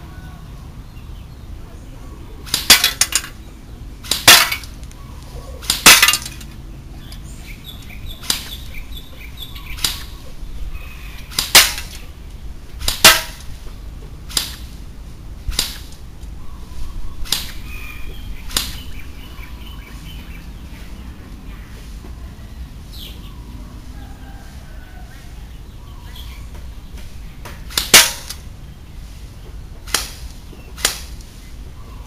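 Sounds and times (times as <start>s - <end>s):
toy gun firing sharp cracks: 2.5s - 3.4s, 4.0s - 4.8s, 5.6s - 6.4s, 8.2s - 8.6s, 9.8s - 10.1s, 11.3s - 12.0s, 12.8s - 13.6s, 14.3s - 14.7s, 15.5s - 16.0s, 17.2s - 17.6s, 18.5s - 18.8s, 27.7s - 28.4s, 29.9s - 31.2s.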